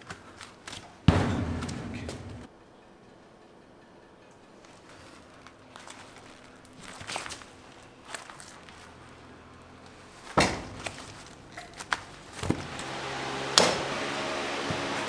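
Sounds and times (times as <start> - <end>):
steady hum: 1.1 - 5.8.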